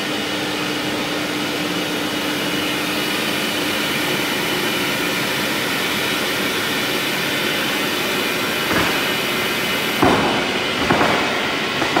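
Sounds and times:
machine hum and hiss: 0:00.0 - 0:12.0
sharp knocks: 0:10.0 - 0:12.0.

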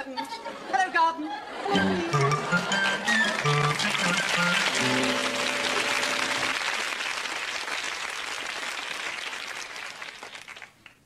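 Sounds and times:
short music cue: 0:01.8 - 0:06.6
audience applauding: 0:01.8 - 0:11.0.

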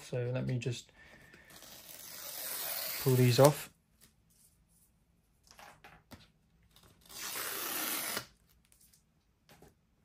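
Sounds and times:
cardboard pull tab ripping: 0:07.0 - 0:08.3.

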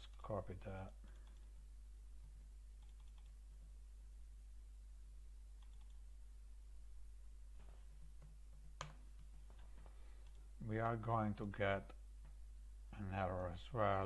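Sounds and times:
faint keyboard clicks: 0:01.1 - 0:01.5, 0:02.8 - 0:03.4, 0:05.6 - 0:06.0, 0:08.2 - 0:10.5.

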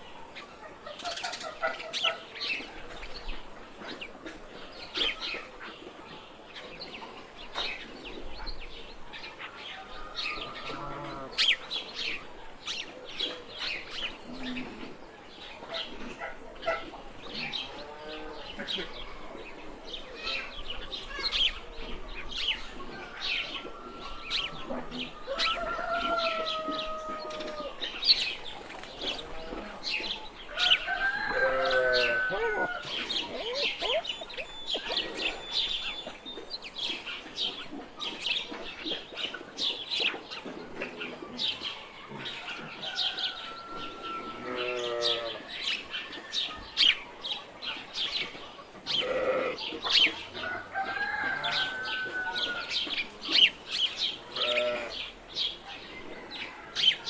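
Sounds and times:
small birds chirping: 0:00.0 - 0:43.5
farm animals calling: 0:09.4 - 0:15.0, 0:15.6 - 0:39.4, 0:40.7 - 0:45.9, 0:47.4 - 0:57.0.

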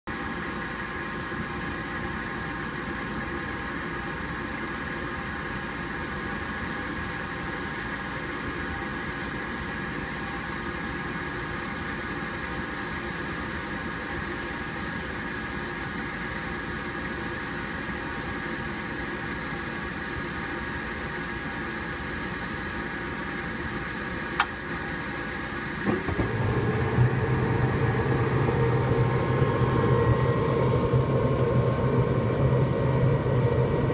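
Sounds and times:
furnace burners humming: 0:20.2 - 0:33.9
sharp click: 0:24.4 - 0:24.6
furnace inducer motor whining: 0:25.8 - 0:33.9.

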